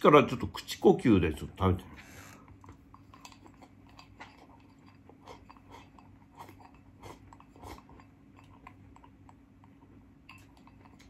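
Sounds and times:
person chewing food: 2.5s - 11.0s
spoon scraping bowl: 3.2s - 9.1s.

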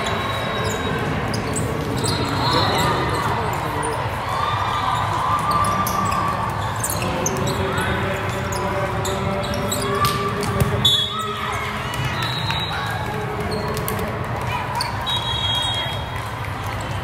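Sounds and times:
chatter of voices: 0.0s - 17.0s
balls bouncing on floor: 9.6s - 10.9s, 11.7s - 14.9s.

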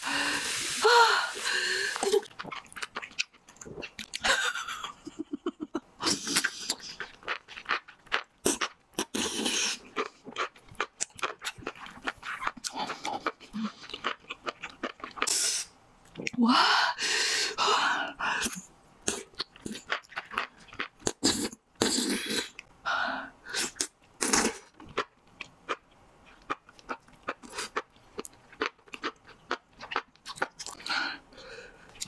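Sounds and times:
wet chewing and slurping: 1.9s - 4.2s, 6.1s - 16.4s, 19.1s - 22.7s, 23.6s - 30.9s.

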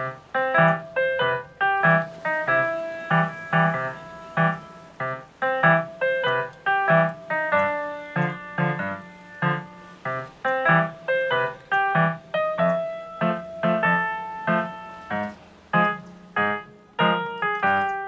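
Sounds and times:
light melody of struck notes: 0.0s - 18.0s.

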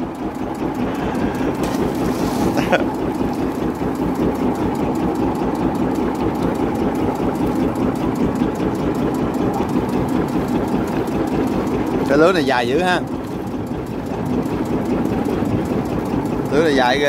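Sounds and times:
small boat engine idling: 0.0s - 17.0s.

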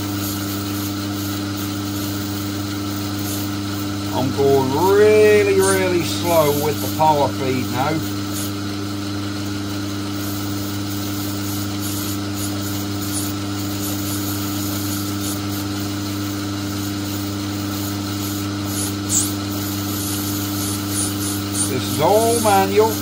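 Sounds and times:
lathe motor hum: 0.0s - 23.0s
cutting tool scraping metal: 10.2s - 15.7s, 17.8s - 23.0s.

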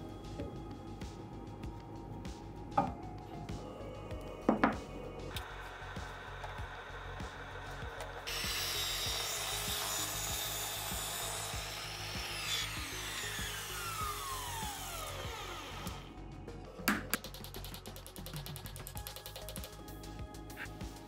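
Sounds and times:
background music: 0.0s - 21.0s
mitre saw cutting wood: 5.4s - 16.1s
saw blade spinning down: 5.4s - 16.1s.

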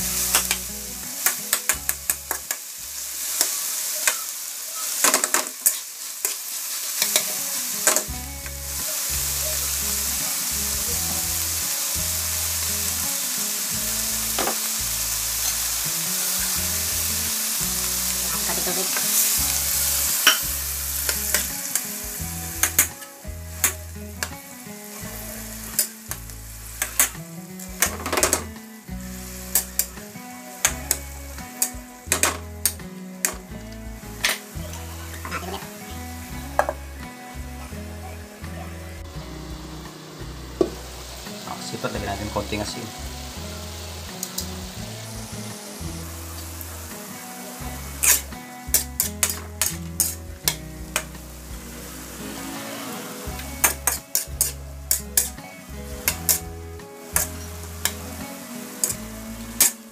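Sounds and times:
food sizzling in a wok: 0.0s - 59.9s
metal spatula scraping pan: 48.0s - 50.2s, 51.8s - 56.5s.

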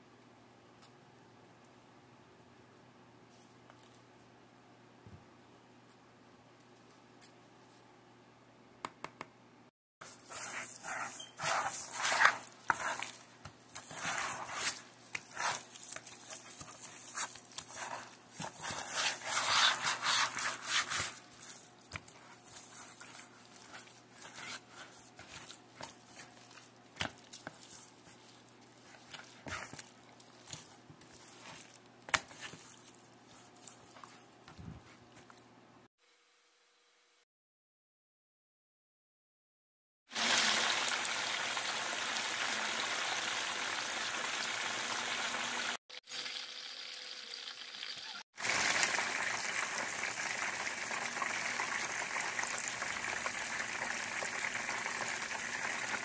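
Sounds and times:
wet squishing and rubbing: 10.0s - 35.4s.

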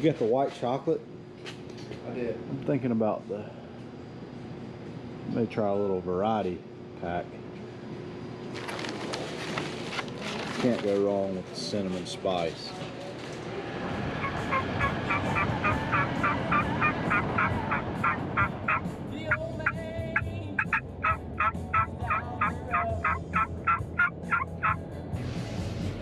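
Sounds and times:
truck cab road noise: 13.3s - 26.0s
turkey call yelps: 14.2s - 19.8s, 20.6s - 24.8s.

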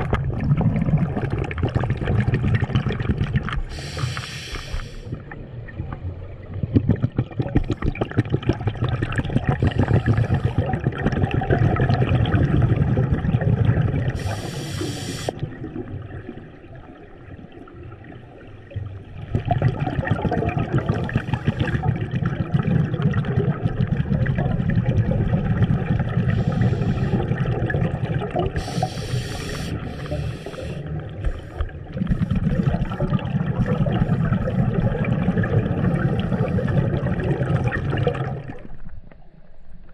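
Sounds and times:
underwater exhaled bubbles: 0.0s - 39.9s
regulator inhalation hiss: 3.7s - 5.1s, 9.6s - 10.6s, 14.2s - 15.4s, 26.3s - 27.2s, 28.6s - 31.6s.

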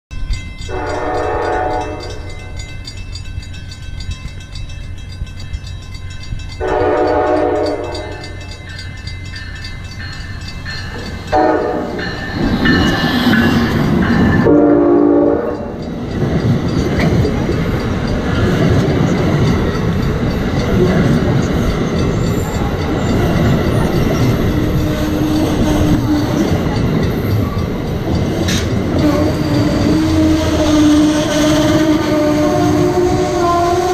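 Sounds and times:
train wheels rushing on rails: 0.1s - 33.9s
train horn blasts: 0.7s - 2.3s, 6.6s - 8.4s, 11.3s - 12.1s, 14.4s - 15.8s, 24.5s - 26.4s, 28.9s - 33.9s.

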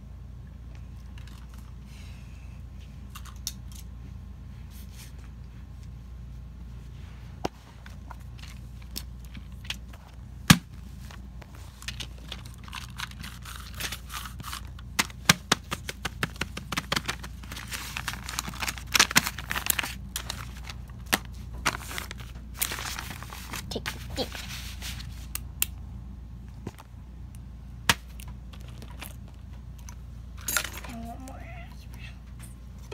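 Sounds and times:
rustling: 16.0s - 25.3s.

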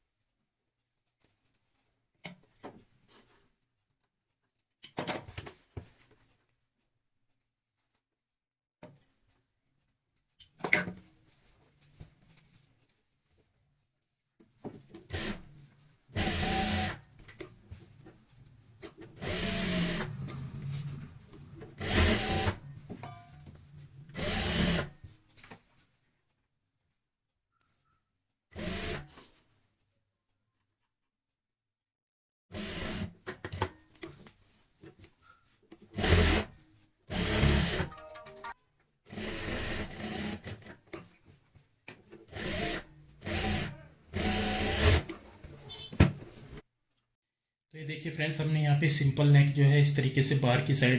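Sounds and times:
industrial sewing machine running: 19.2s - 20.8s, 21.8s - 22.6s
sewing machine running: 19.2s - 20.9s, 21.8s - 22.6s, 24.1s - 24.9s, 39.1s - 40.6s, 42.4s - 45.0s.

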